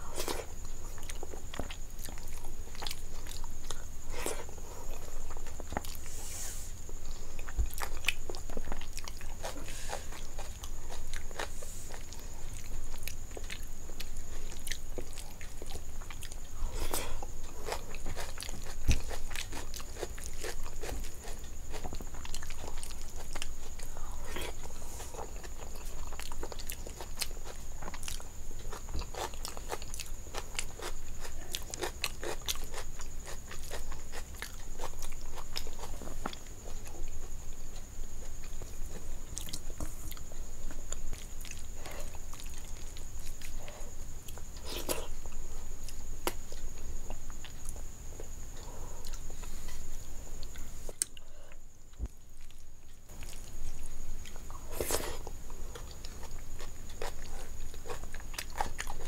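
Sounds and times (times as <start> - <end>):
wet chewing and mouth clicks: 52.4 - 59.0.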